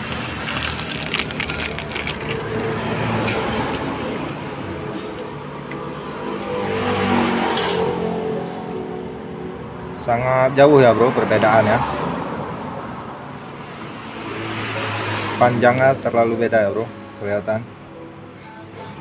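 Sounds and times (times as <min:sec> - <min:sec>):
plastic packaging crinkling: 0:00.0 - 0:02.8.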